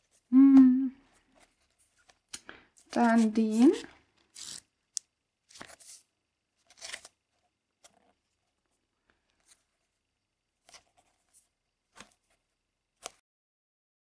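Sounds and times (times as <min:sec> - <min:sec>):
paper sheets rustling: 0:01.2 - 0:04.6, 0:05.5 - 0:07.2.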